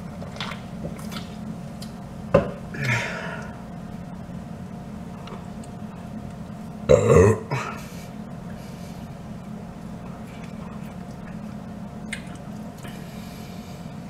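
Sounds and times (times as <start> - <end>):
man burping: 6.9 - 7.8.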